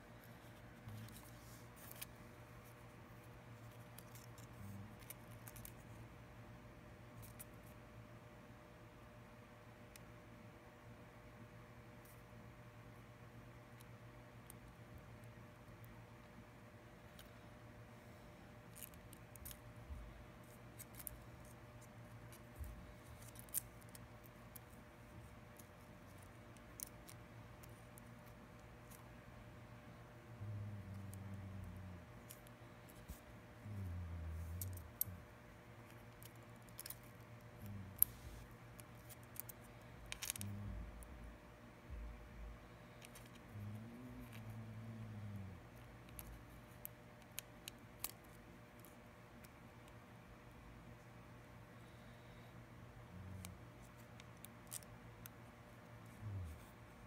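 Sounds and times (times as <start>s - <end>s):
faint steady hum: 0.0s - 57.0s.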